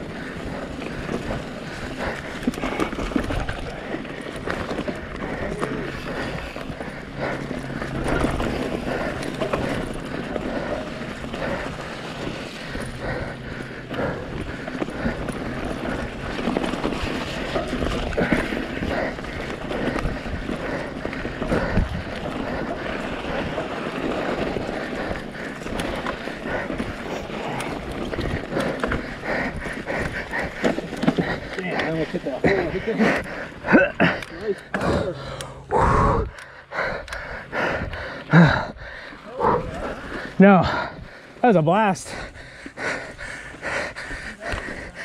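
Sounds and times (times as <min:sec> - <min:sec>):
bike clattering over rocks: 0:00.6 - 0:13.0, 0:14.2 - 0:35.4
wind buffeting microphone: 0:14.1 - 0:30.6.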